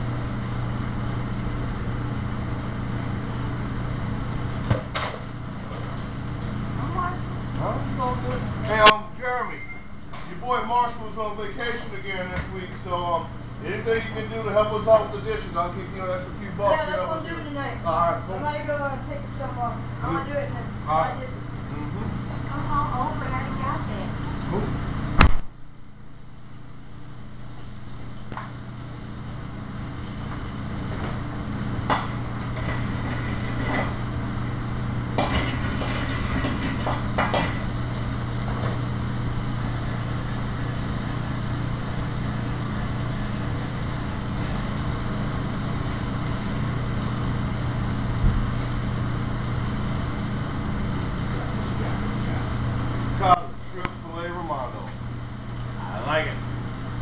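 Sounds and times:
food sizzling on griddle: 0.0s - 25.3s, 26.0s - 57.0s
kitchen ventilation hum: 0.0s - 57.0s
pans clinking: 35.2s - 37.7s.

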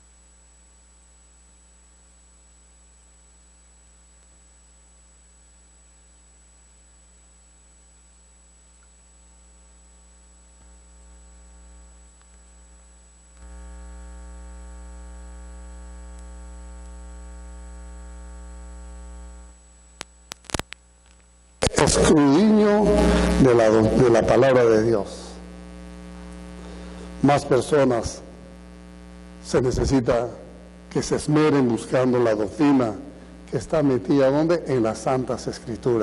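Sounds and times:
electrical mains hum: 0.0s - 36.0s
sharp clicks: 20.0s - 21.8s.

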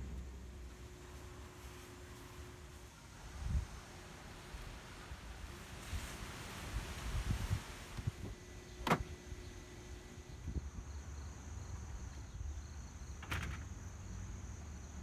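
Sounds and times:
insects chirping: 8.0s - 15.0s.

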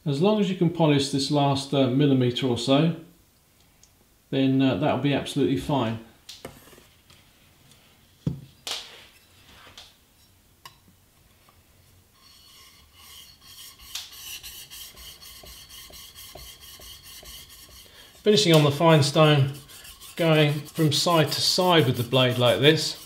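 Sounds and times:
plane iron scraping on sharpening plate: 12.2s - 23.0s.

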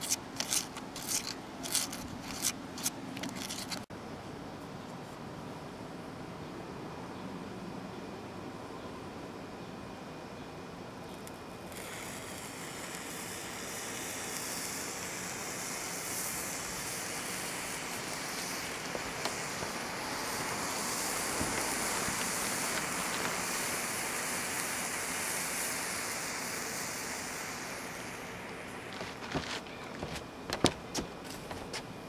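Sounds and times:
fire hissing rush: 0.0s - 3.9s, 11.6s - 31.7s
fire crackles: 11.2s - 31.8s.

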